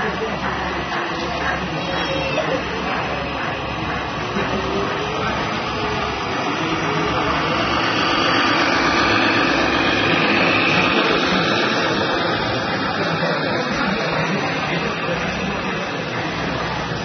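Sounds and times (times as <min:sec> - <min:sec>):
toy truck drivetrain whine: 0:00.0 - 0:17.0.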